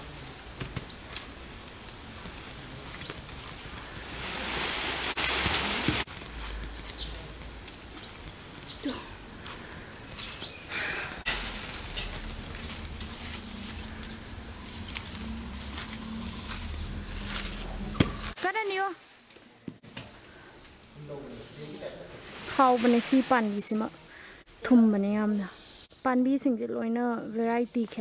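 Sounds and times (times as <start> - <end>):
high insect drone: 0.0 - 18.4
rustling: 0.7 - 8.8, 11.3 - 20.4
light footsteps on grass: 14.8 - 19.8.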